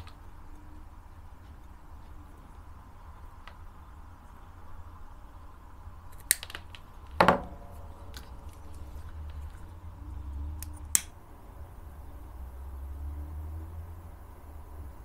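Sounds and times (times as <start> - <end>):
scissors snipping cord: 10.6 - 11.1.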